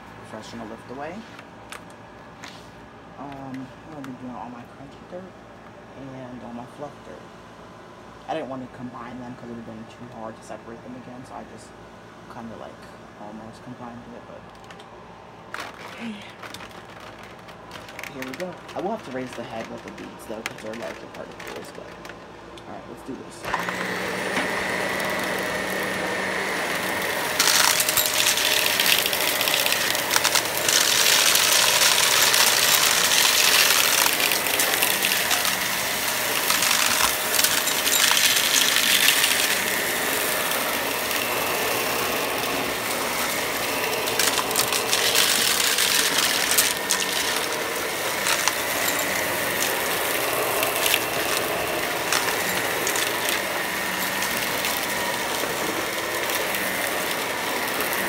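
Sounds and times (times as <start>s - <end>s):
particles rattling through vacuum: 15.4s - 58.0s
vacuum cleaner running: 15.5s - 58.0s.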